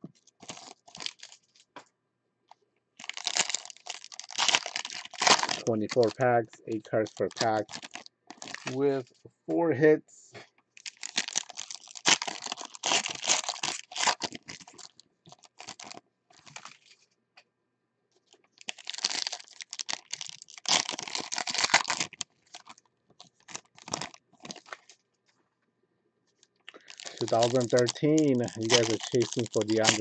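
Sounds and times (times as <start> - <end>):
card pack wrappers tearing and crinkling: 0.2 - 1.6, 3.0 - 6.3, 6.9 - 8.9, 10.8 - 16.9, 18.6 - 24.9, 26.7 - 30.0.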